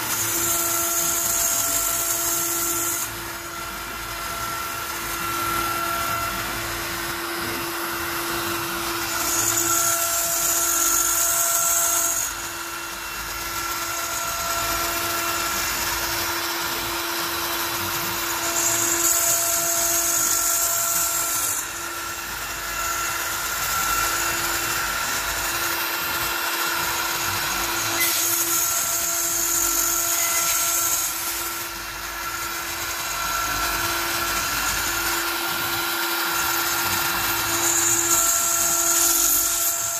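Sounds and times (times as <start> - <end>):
router spindle whine: 0.0 - 39.9
bit cutting plastic hiss: 16.7 - 39.9.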